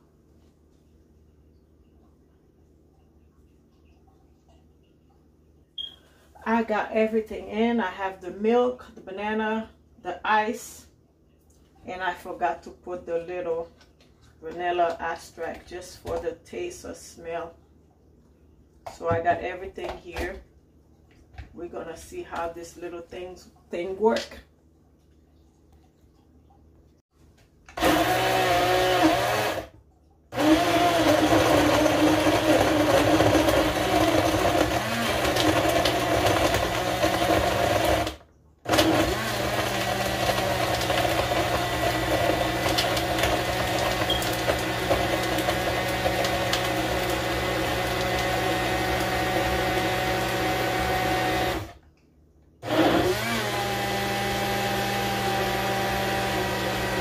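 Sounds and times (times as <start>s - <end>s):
blender crushing ice: 27.7s - 51.8s, 52.6s - 57.0s.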